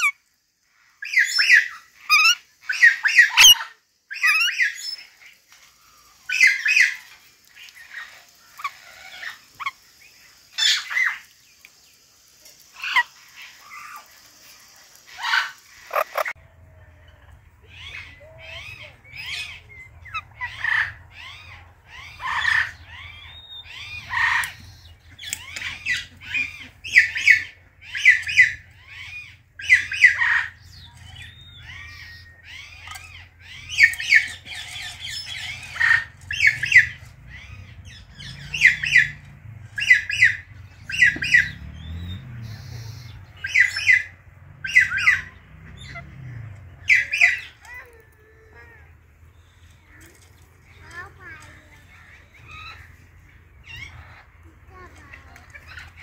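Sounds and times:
parakeets squawking: 15.1s - 16.4s, 17.6s - 50.0s, 50.7s - 56.0s.

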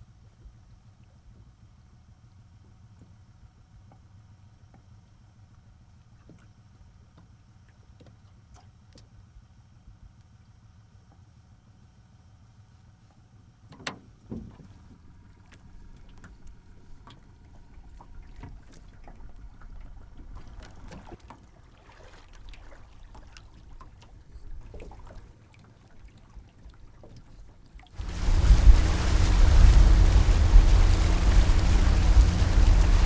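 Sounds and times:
water lapping at a boat: 0.0s - 33.0s
small splashes: 17.0s - 27.2s, 27.8s - 33.0s
low rumble: 28.0s - 33.0s.

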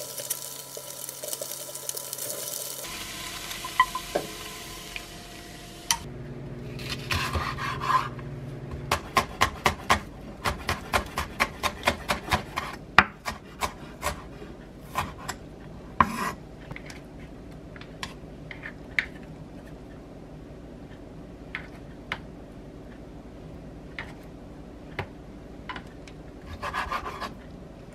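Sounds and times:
knife chopping on wooden board: 8.9s - 14.3s.

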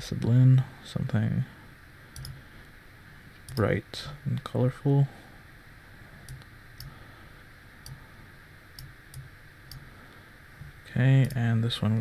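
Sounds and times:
faint steady hiss: 0.0s - 12.0s
computer mouse clicking: 2.2s - 2.4s, 8.8s - 9.8s.

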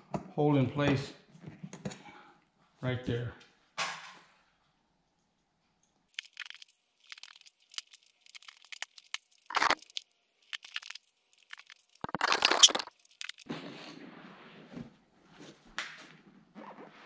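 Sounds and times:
small clicks and crackles: 5.8s - 13.5s
vinyl crinkling: 6.2s - 13.5s.

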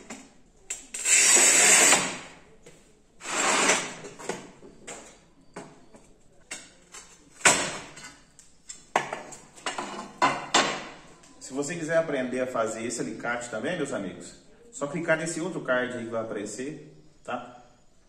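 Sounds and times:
tile scorer scratching tile: 1.0s - 2.2s, 3.2s - 4.0s.

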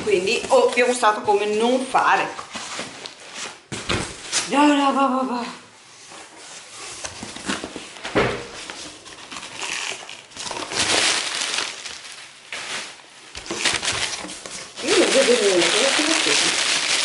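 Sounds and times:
plastic packing crinkling: 8.6s - 17.0s.

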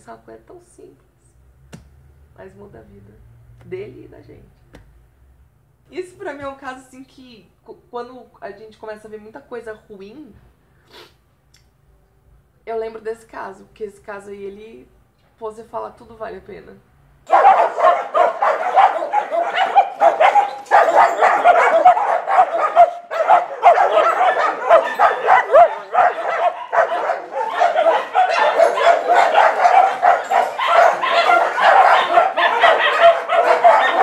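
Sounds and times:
many dogs barking: 17.3s - 34.0s.

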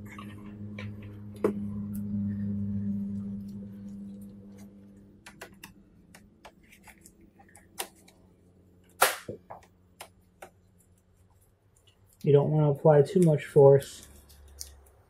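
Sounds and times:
low hum: 0.0s - 9.0s
sharp plastic snap: 9.0s - 9.4s.

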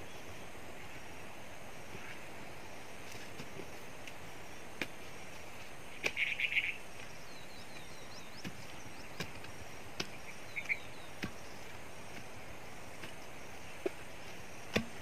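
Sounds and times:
steady outdoor hiss: 0.0s - 15.0s
birds chirping: 3.5s - 15.0s
hand tool knocking on stump: 8.4s - 11.5s, 14.7s - 15.0s.

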